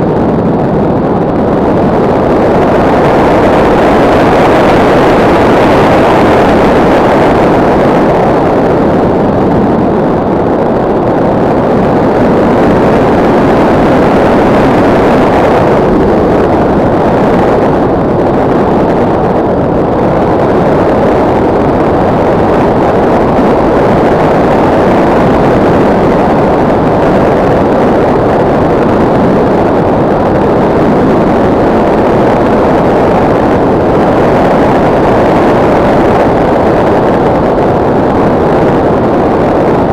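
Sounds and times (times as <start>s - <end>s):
rush of air in flight: 0.0s - 39.9s.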